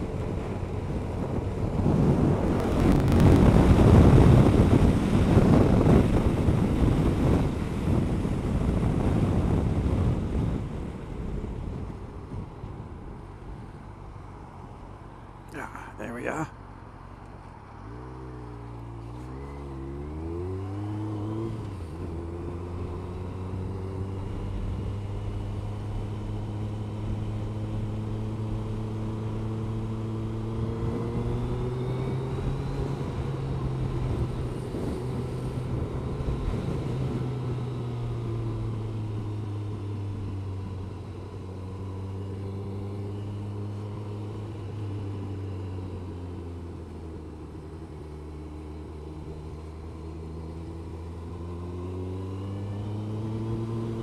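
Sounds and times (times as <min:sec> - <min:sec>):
motorcycle engine accelerating: 0:00.0 - 0:12.5, 0:17.8 - 0:54.0
wind noise: 0:00.0 - 0:13.8, 0:20.2 - 0:41.4.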